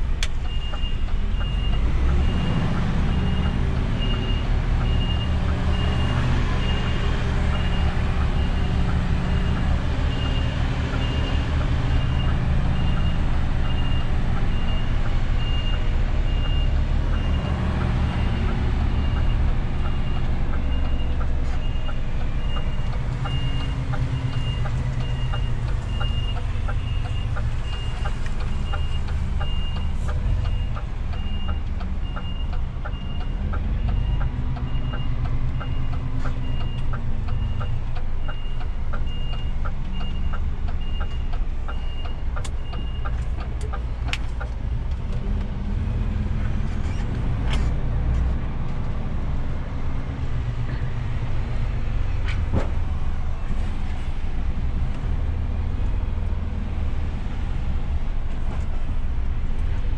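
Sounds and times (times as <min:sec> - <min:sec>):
diesel engine low rumble: 0:00.0 - 0:59.9
truck reversing alarm beeping: 0:00.4 - 0:44.5.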